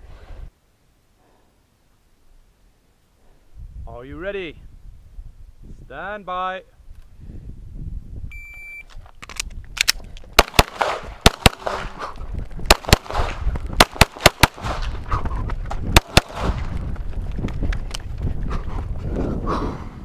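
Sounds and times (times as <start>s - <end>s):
shot timer beep: 8.3s - 8.9s
pistol shots: 10.4s - 12.0s, 12.7s - 15.0s, 16.0s - 16.7s.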